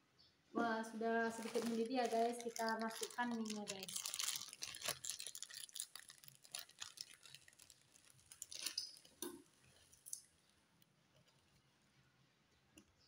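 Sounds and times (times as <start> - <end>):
plastic packet crinkling: 1.0 - 10.2.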